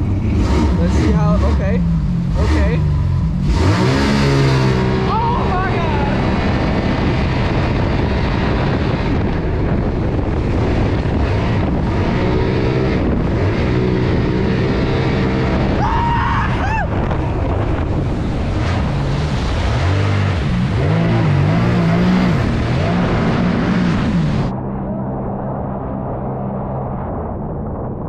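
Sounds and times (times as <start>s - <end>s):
jet kart engine running: 0.0s - 15.8s
wind on microphone: 0.0s - 28.0s.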